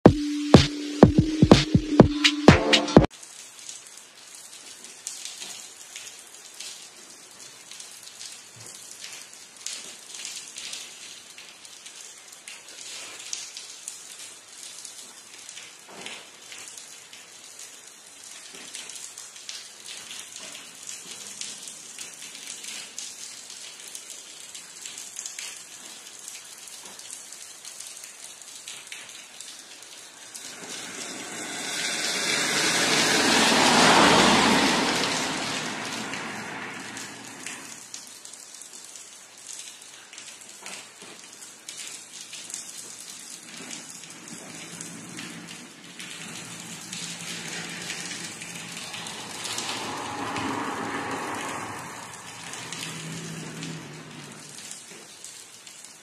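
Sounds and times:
rain pattering on a surface: 0:03.0 - 0:56.0
loud rushing whoosh: 0:30.2 - 0:37.8, 0:46.2 - 0:54.6.

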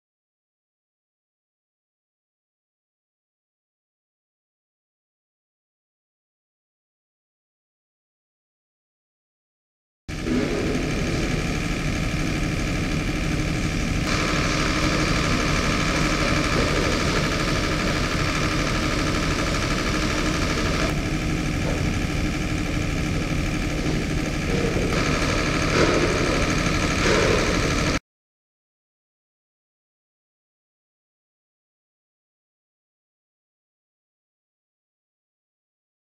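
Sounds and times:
engine humming with whine: 0:10.1 - 0:28.0.

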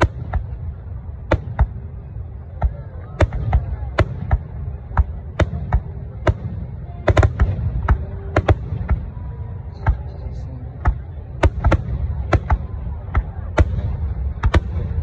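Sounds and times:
firework shells booming: 0:00.0 - 0:09.2, 0:10.8 - 0:15.0.

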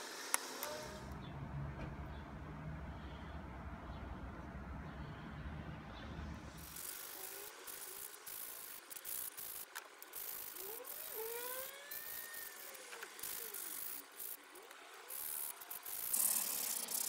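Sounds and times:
faint squeaky glides: 0:10.6 - 0:13.8
sandpaper rasping on wood: 0:15.2 - 0:17.0.

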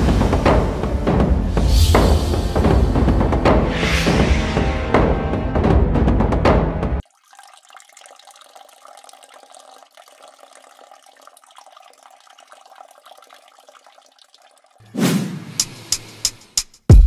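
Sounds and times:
music: 0:00.0 - 0:07.0, 0:15.5 - 0:17.0
liquid trickling into bottle: 0:07.0 - 0:14.8.

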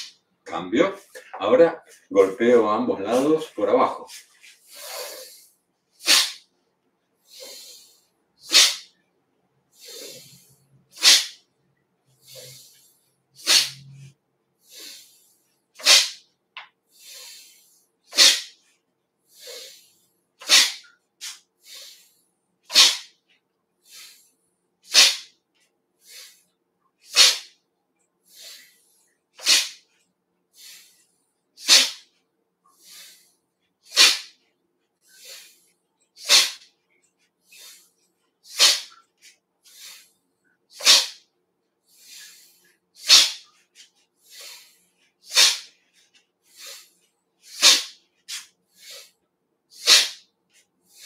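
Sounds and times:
sharp nasal exhales: 0:04.5 - 0:06.5, 0:07.2 - 0:08.9, 0:09.7 - 0:11.4, 0:12.2 - 0:16.2, 0:16.9 - 0:18.6, 0:19.3 - 0:23.2, 0:23.8 - 0:25.3, 0:26.0 - 0:27.6, 0:28.3 - 0:29.9, 0:30.6 - 0:32.1, 0:32.7 - 0:34.4, 0:35.0 - 0:36.7, 0:37.5 - 0:39.0, 0:39.6 - 0:41.2, 0:41.9 - 0:50.3.

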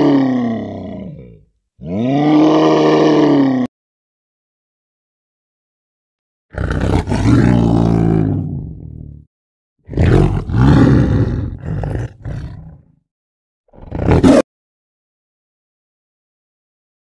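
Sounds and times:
large animal roaring: 0:00.0 - 0:03.7, 0:06.5 - 0:09.2, 0:09.9 - 0:13.0, 0:13.8 - 0:14.4.

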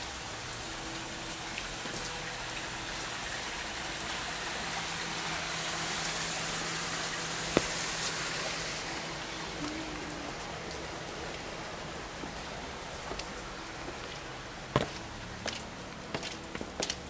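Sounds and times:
rain falling on pavement: 0:00.0 - 0:17.0.

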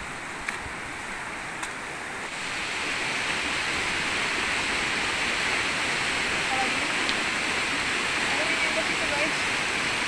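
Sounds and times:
water rushing: 0:00.0 - 0:10.0.

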